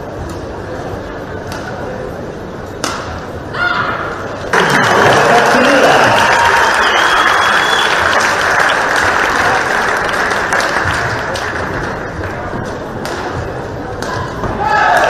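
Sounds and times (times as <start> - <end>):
crowd applauding: 4.5 - 12.4.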